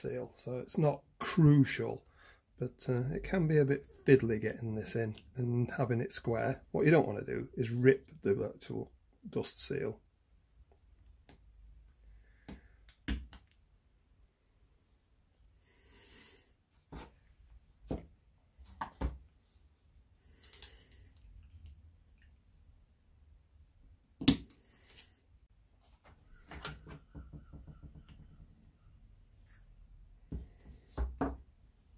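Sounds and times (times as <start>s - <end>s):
small metal parts clicking: 20.3s - 21.8s.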